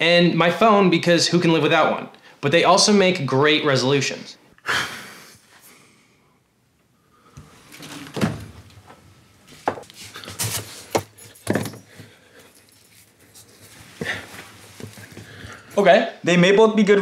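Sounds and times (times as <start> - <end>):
freezer door opening: 7.7 - 8.8.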